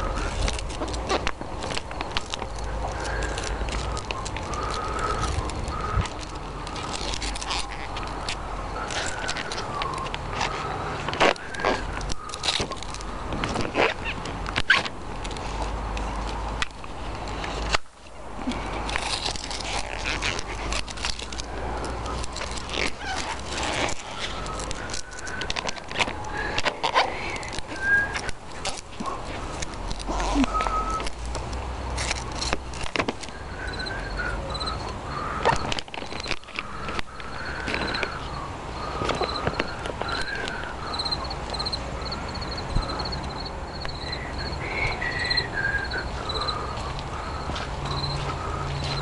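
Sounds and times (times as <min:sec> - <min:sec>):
scattered clicks: 0:00.0 - 0:49.0
steady low rumble: 0:00.0 - 0:49.0
lower wavering bird calls: 0:02.5 - 0:14.2, 0:21.4 - 0:31.1, 0:33.2 - 0:49.0
high bird chirps: 0:40.1 - 0:48.3.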